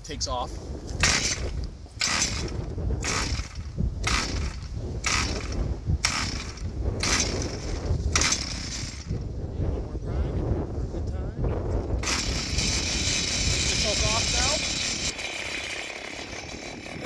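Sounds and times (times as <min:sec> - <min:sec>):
wind rumble on microphone: 0:00.0 - 0:17.0
starter rope pulled: 0:00.9 - 0:09.2, 0:11.9 - 0:17.0.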